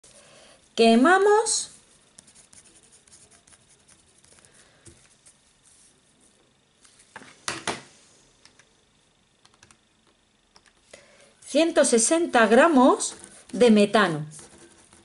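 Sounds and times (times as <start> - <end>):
pen scratching on paper: 2.2 - 4.4.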